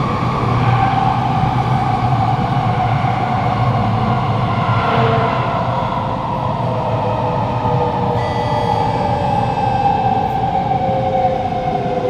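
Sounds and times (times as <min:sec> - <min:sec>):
wheel and tunnel rumble: 0:00.0 - 0:08.2
faint high tones: 0:08.0 - 0:10.5.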